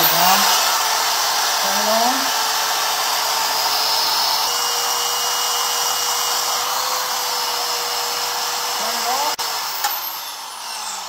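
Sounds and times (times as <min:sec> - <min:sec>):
band saw running: 0:00.0 - 0:11.0.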